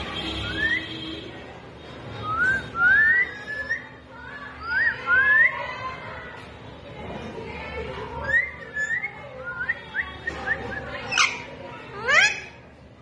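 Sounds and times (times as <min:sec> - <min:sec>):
parakeet whistling: 0:08.2 - 0:12.5.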